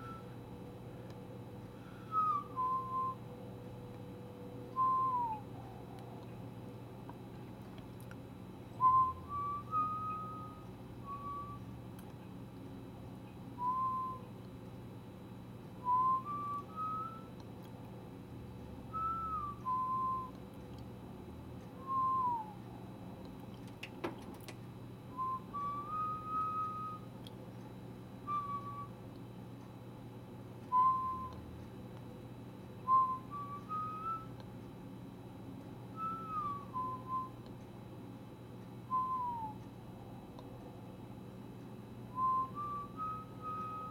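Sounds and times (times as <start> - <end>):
person whistling: 0.0 - 0.3, 1.9 - 3.2, 4.8 - 5.5, 8.8 - 11.7, 13.6 - 14.3, 15.8 - 17.3, 18.9 - 20.4, 21.8 - 22.6, 25.1 - 27.1, 28.3 - 28.9, 30.7 - 31.4, 32.9 - 34.4, 36.0 - 37.4, 38.9 - 39.6, 42.1 - 43.9
faint low hum: 0.0 - 43.9.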